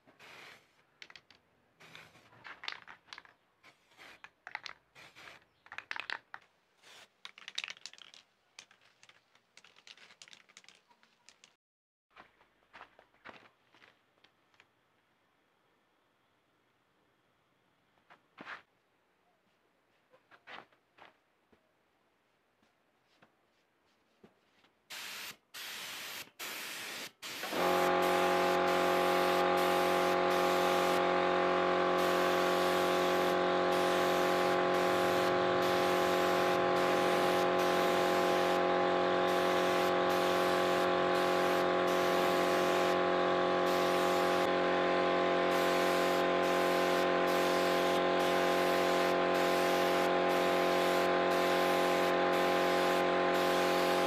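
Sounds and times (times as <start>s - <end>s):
spray gun hissing: 24.9s - 44.5s, 45.4s - 54.0s
steady machine hum: 27.6s - 54.0s.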